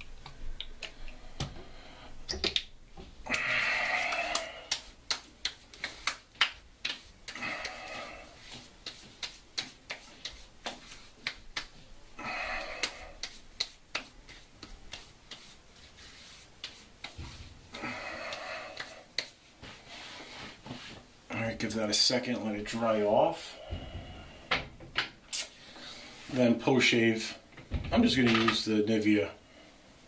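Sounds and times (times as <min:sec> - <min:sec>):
hands slapping skin: 0:03.3 - 0:11.8, 0:12.4 - 0:19.4.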